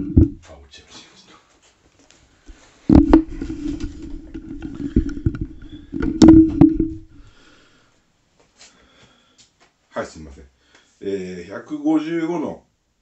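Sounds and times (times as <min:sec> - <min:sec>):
rubbing and bumping on microphone: 0:00.0 - 0:00.6, 0:02.5 - 0:07.3
loud knock on microphone: 0:02.9 - 0:07.3.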